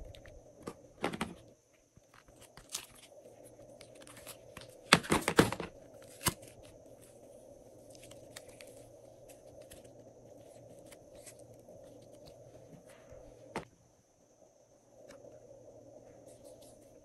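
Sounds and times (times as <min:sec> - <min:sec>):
faint crackles: 0:00.0 - 0:13.7
steady background hum: 0:00.0 - 0:17.0.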